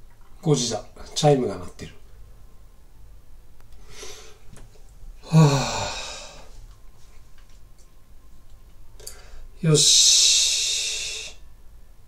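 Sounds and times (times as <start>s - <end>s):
soft exhale: 3.8s - 4.5s
man sighing: 5.2s - 6.6s.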